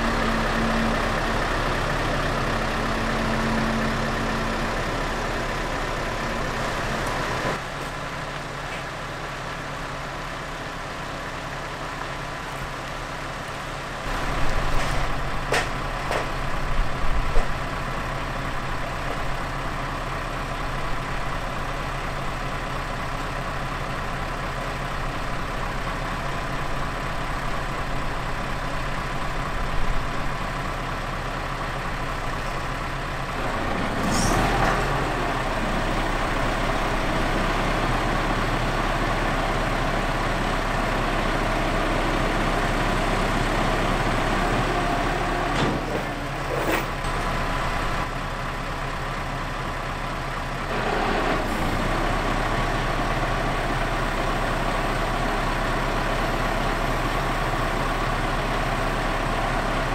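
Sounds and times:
diesel truck engine idling: 0.0 - 59.9
loader crane boom working: 0.0 - 59.9.

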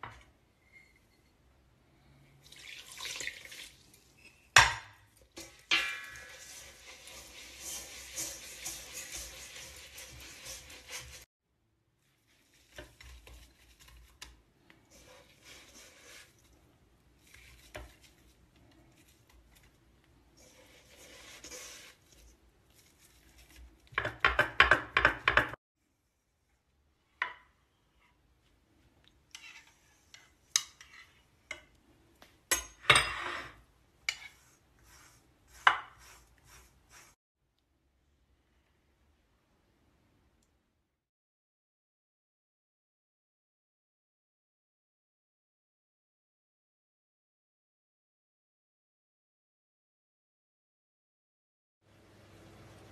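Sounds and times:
whisk scraping in metal bowl: 5.4 - 11.3, 12.0 - 25.5, 29.3 - 31.6, 33.3 - 37.2.

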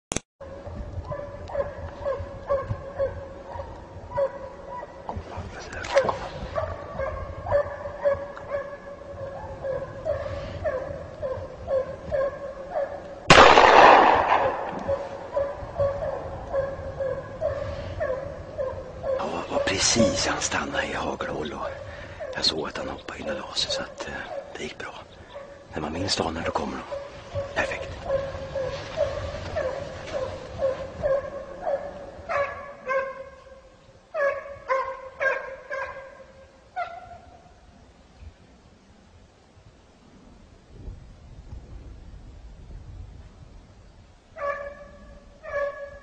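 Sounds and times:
hound baying: 0.5 - 13.4, 14.3 - 37.4, 44.4 - 46.0
gunshot echoing: 13.3 - 15.3.

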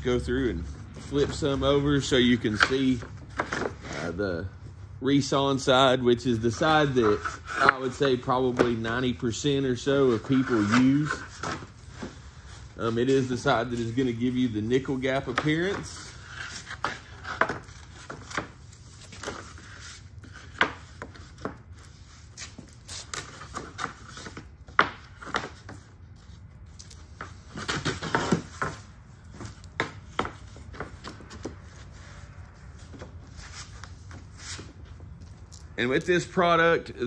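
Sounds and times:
boards sliding against each other: 6.5 - 21.6.

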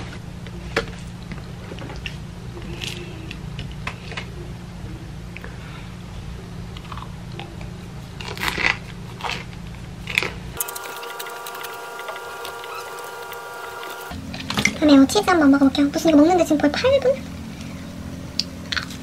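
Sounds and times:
low background hum: 0.0 - 19.0
crusty bread crunching: 8.2 - 10.4
steady held tones: 10.6 - 14.2.

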